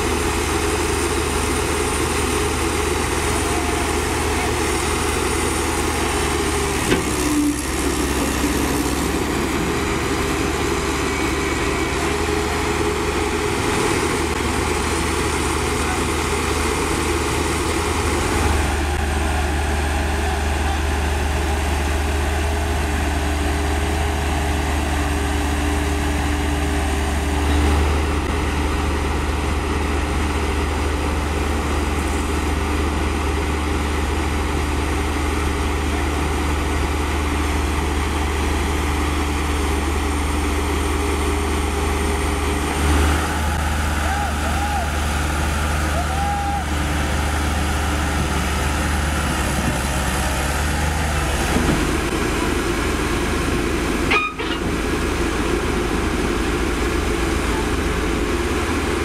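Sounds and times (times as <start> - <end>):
diesel engines idling: 0.0 - 59.0.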